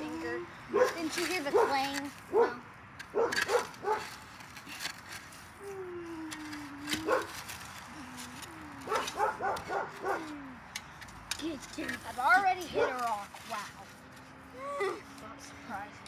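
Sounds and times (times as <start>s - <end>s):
dirt clods crunching: 0.0s - 14.5s
dog whining: 6.0s - 7.3s, 8.1s - 10.7s.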